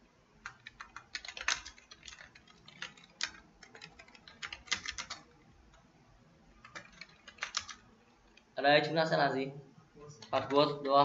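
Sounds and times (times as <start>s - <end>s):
typing on computer keyboard: 0.4s - 5.8s, 6.6s - 8.4s.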